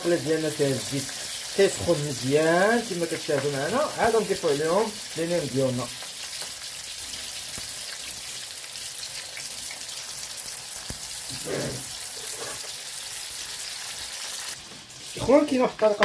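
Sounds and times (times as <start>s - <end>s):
food sizzling in oil: 0.0s - 16.0s.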